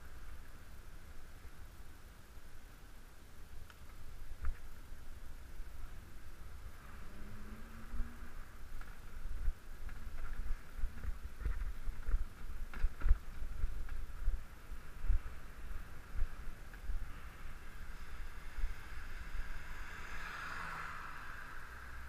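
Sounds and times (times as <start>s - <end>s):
wind buffeting microphone: 7.9s - 19.6s.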